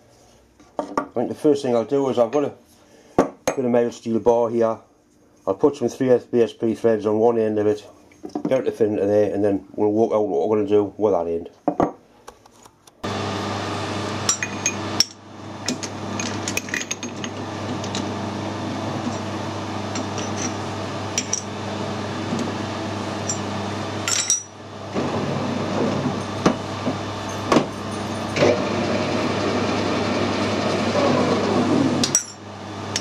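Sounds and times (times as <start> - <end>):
lathe machine hum: 13.0 - 33.0
lathe chuck spinning: 18.8 - 21.6.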